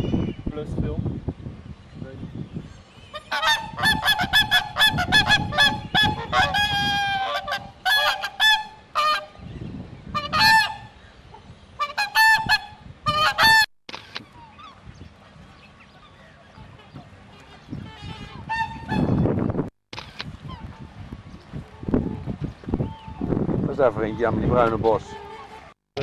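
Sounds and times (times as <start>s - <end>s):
swans honking: 3.0s - 9.4s, 10.1s - 13.7s, 15.7s - 19.3s, 24.2s - 25.8s.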